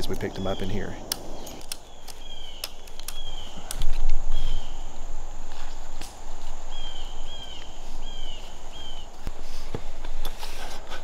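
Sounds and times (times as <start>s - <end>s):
sharp clicks: 0.0s - 4.2s.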